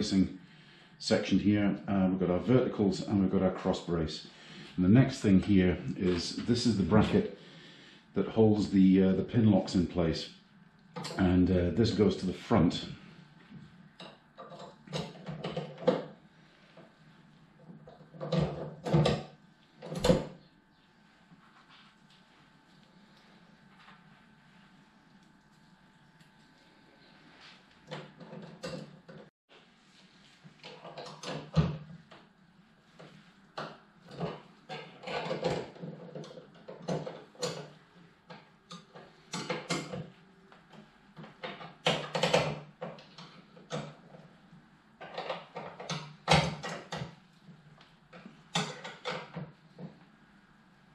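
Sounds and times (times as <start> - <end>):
metal clanks and clicks: 11.0 - 11.3, 14.0 - 16.1, 33.6 - 40.2, 48.2 - 49.9.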